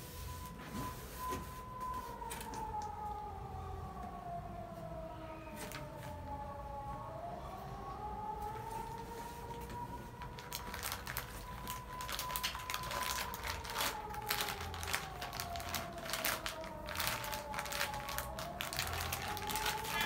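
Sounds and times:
faint tone rising and falling: 0.0s - 10.4s
plastic packets crinkling: 8.9s - 20.0s.

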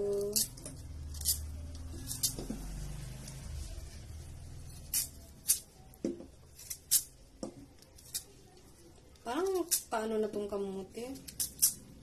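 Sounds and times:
knife peeling sweet potato: 0.0s - 7.2s, 9.3s - 10.0s, 11.1s - 12.0s.

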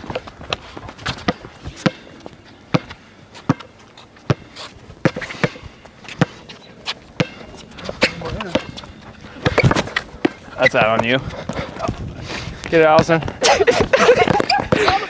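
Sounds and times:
basketball bouncing on court: 4.3s - 5.6s, 7.2s - 10.4s.

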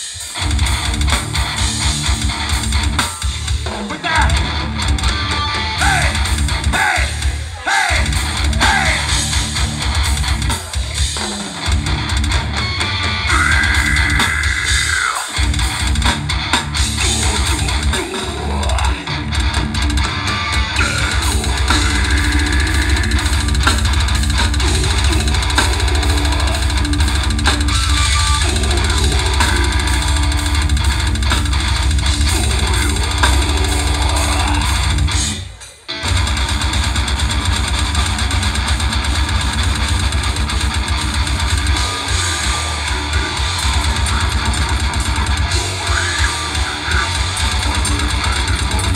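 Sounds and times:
bass guitar: 0.0s - 48.9s
distorted electric guitars: 0.0s - 48.9s
drum kit: 0.0s - 48.9s
vocals: 3.2s - 9.8s, 13.2s - 15.6s, 16.9s - 19.6s, 20.7s - 36.0s, 41.9s - 48.9s.

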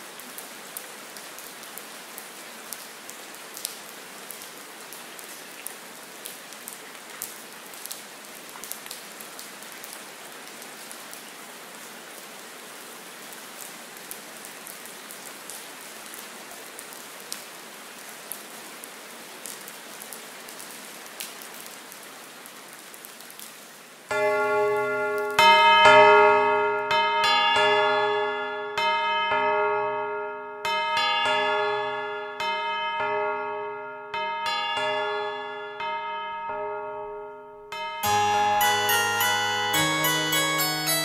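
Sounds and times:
steady rain: 0.0s - 29.6s, 38.0s - 41.0s
bell-like chimes: 24.1s - 41.0s.

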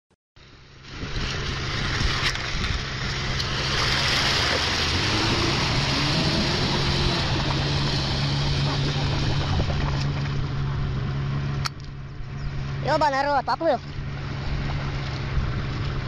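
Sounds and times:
water rushing and splashing: 0.4s - 11.6s, 12.6s - 16.0s
car engine running: 0.5s - 16.0s.

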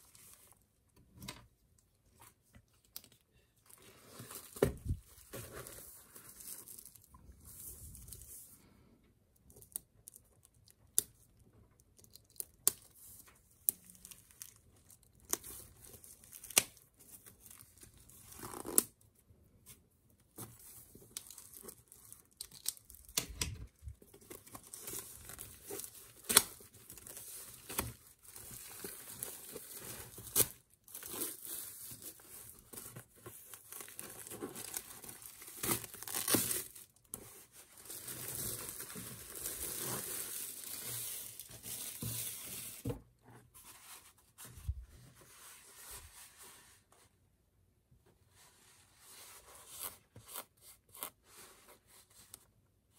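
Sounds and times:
plastic wrap crinkling: 20.9s - 42.8s
plastic wrap snapping: 33.7s - 36.9s.

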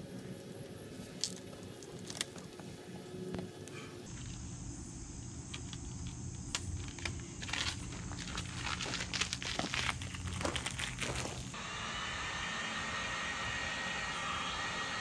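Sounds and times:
steady low hum: 0.0s - 15.0s
vinyl film crinkling: 0.9s - 3.4s, 6.5s - 11.6s
footsteps on gravel: 7.4s - 11.6s.

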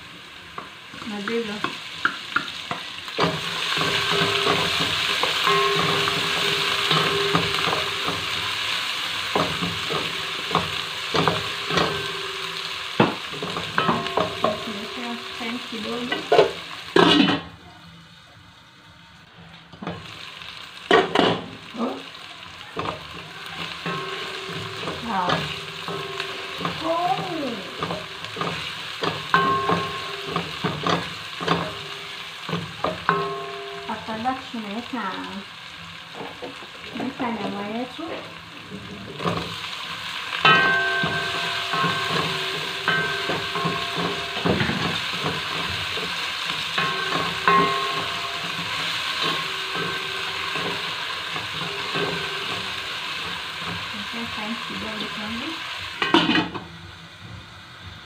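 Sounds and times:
onions sizzling in hot oil: 0.0s - 58.0s
wooden spoon knocking a pan: 1.2s - 17.4s, 22.8s - 34.4s, 40.4s - 54.0s.

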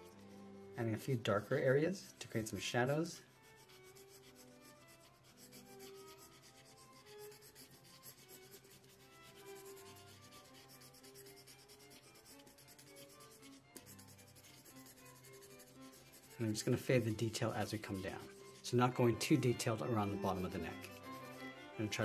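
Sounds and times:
pencil scratching on paper: 0.0s - 22.0s
soft background music: 0.0s - 22.0s.

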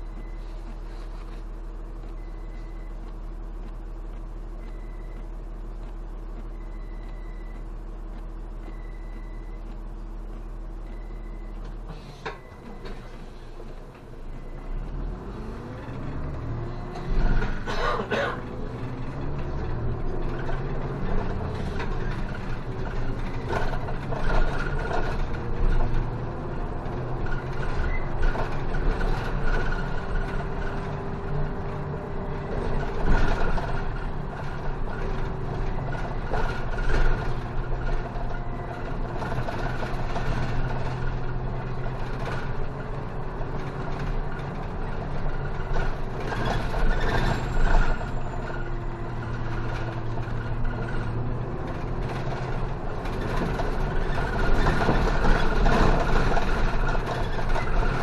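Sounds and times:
bus engine: 0.0s - 58.0s
tyre and road noise: 8.1s - 58.0s
bus body knocks and rattles: 17.0s - 31.8s, 32.4s - 58.0s.

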